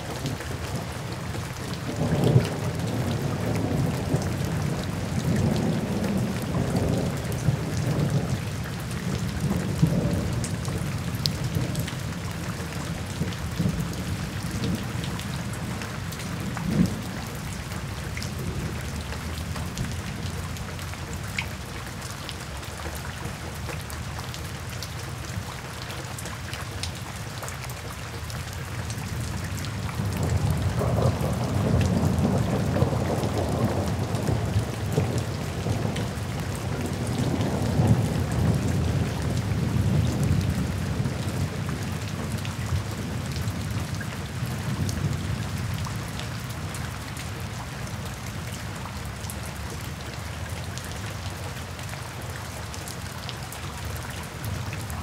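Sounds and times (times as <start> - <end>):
rain on wet pavement: 0.0 - 55.0
rolling thunder rumble: 29.9 - 43.1.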